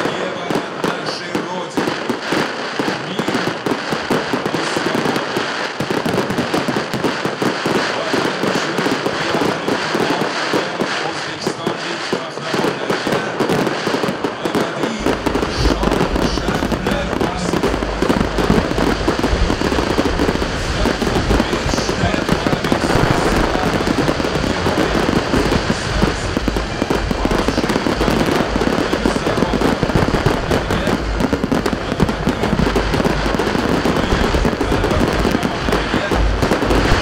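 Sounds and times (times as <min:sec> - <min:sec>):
fireworks bangs and crackles: 0:00.0 - 0:37.0.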